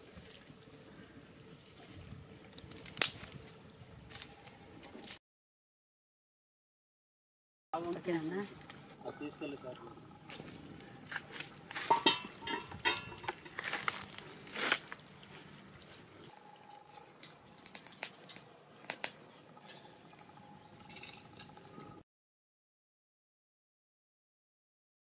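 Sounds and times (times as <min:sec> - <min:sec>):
metal frying pan clattering: 0:11.7 - 0:13.6.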